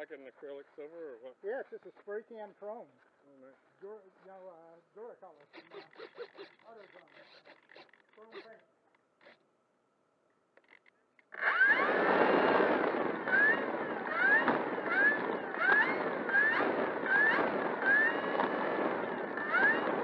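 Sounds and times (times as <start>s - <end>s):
electric motor and propeller whine: 11.3s - 20.0s.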